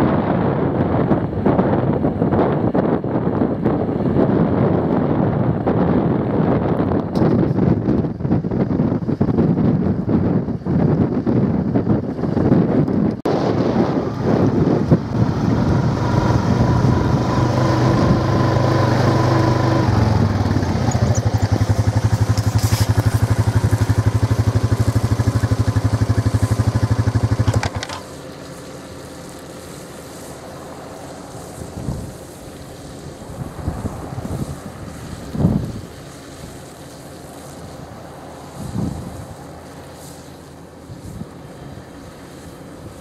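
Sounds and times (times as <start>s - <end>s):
tractor diesel engine under load: 11.8s - 43.0s.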